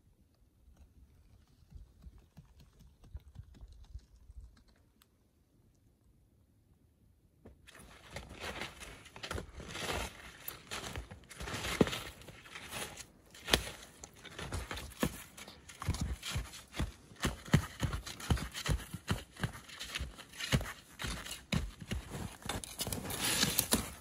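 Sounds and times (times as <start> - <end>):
ski poles planting: 7.6 - 24.0
skis crunching through snow: 7.8 - 24.0.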